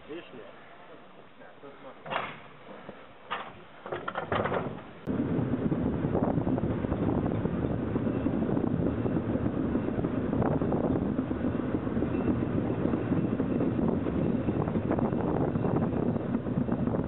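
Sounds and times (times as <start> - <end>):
steam train rumbling: 2.4 - 17.0
wind buffeting microphone: 4.1 - 17.0.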